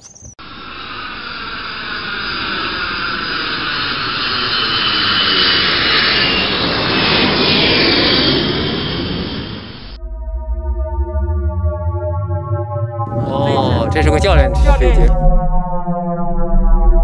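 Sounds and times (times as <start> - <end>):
jet engines rushing: 0.4 - 10.0, 13.1 - 15.2.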